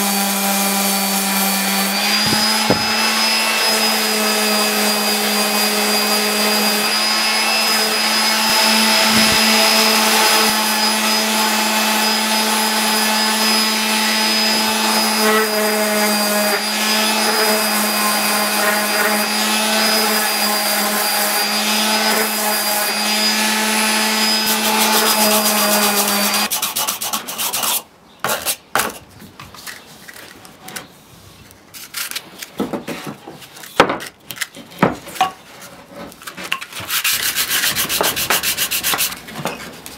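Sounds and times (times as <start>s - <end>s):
electric orbital sander humming: 0.0s - 26.5s
sandpaper rubbing wood by hand: 1.9s - 11.2s, 23.8s - 27.8s, 36.7s - 39.3s.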